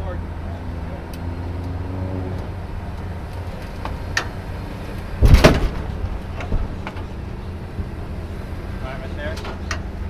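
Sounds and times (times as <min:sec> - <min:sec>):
low engine rumble: 0:00.0 - 0:10.0
loud clattering bang: 0:05.2 - 0:07.0.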